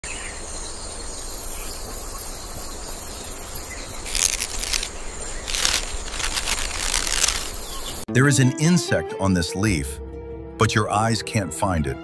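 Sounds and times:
insects chirping: 0.0 - 8.1
rapid pulsing insect trills: 0.5 - 8.0.

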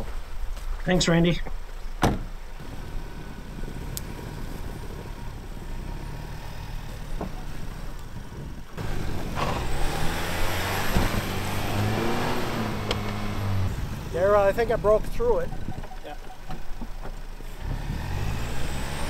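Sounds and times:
tyres churning snow: 2.6 - 15.5, 17.3 - 19.0
car engine revving: 2.6 - 19.0.

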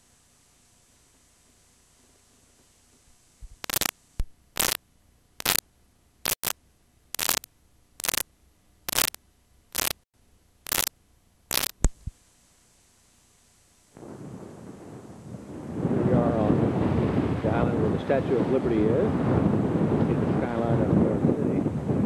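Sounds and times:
short bursts of static hiss: 0.0 - 4.8, 5.4 - 5.6, 6.2 - 8.3, 8.9 - 14.0
faint steady hum: 0.0 - 17.3.

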